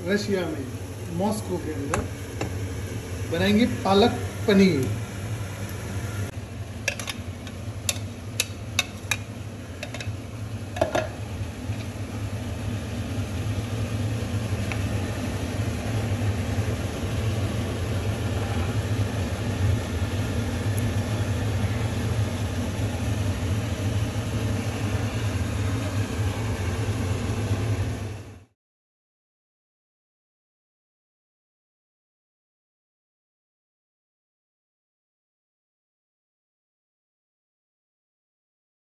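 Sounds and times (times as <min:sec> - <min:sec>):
low mechanical whir: 0:00.0 - 0:08.7, 0:09.3 - 0:28.5.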